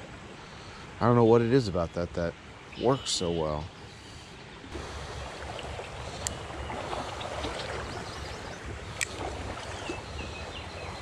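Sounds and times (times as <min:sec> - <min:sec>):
creek running over gravel: 0:04.7 - 0:11.0.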